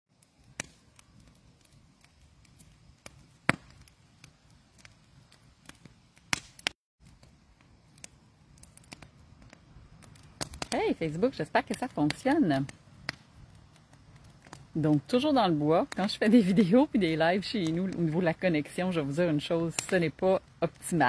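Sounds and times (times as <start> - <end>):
faint background hiss: 7.1 - 21.0.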